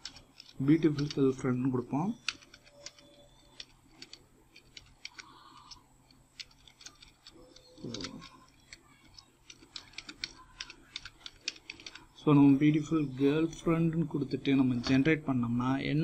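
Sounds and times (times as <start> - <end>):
keyboard keys clicking: 6.4 - 12.0.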